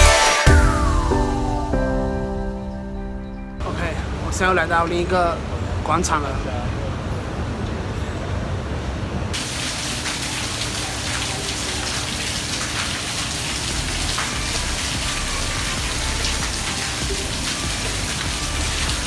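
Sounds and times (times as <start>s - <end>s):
fountain water splashing on paving: 9.4s - 19.0s.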